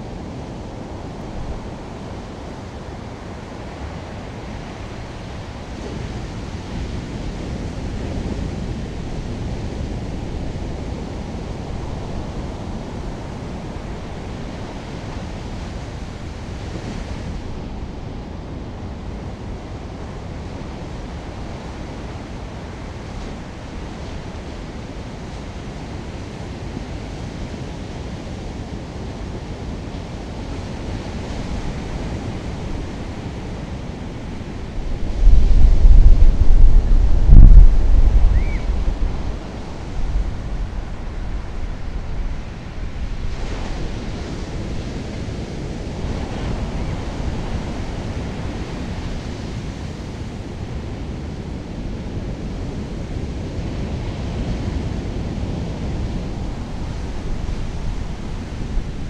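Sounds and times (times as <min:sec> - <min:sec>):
wind on microphone: 0:00.0 - 0:59.0.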